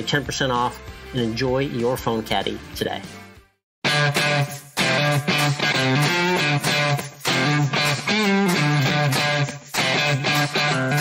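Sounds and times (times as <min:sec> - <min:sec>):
instrumental guitar music: 0:03.8 - 0:11.0.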